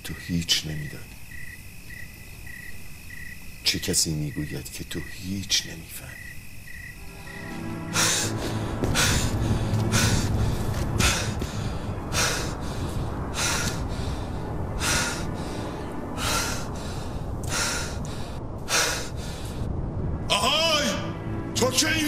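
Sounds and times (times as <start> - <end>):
low rumble: 7.0 - 21.8
man breathing hard: 7.8 - 19.7.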